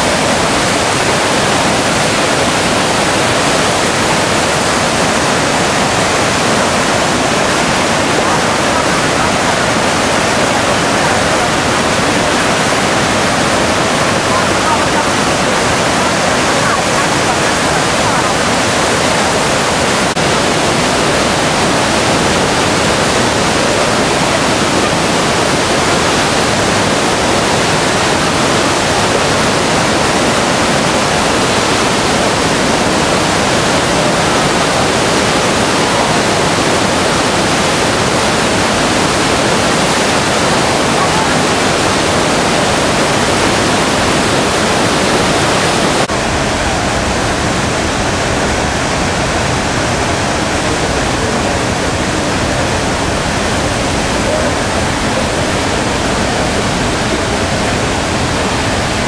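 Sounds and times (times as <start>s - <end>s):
river rapids rushing: 0.0s - 59.0s
waterfall pouring: 0.0s - 59.0s.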